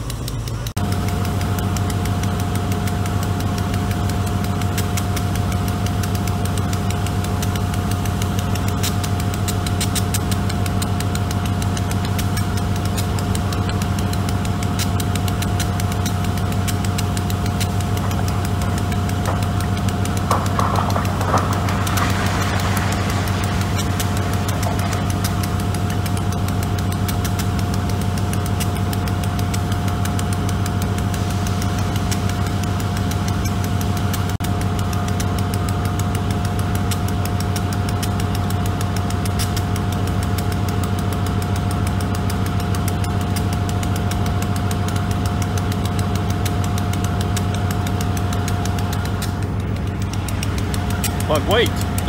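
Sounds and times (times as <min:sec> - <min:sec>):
steady whine: 0:00.0 - 0:35.1, 0:45.9 - 0:52.0
locomotive engine low hum: 0:00.0 - 0:52.0.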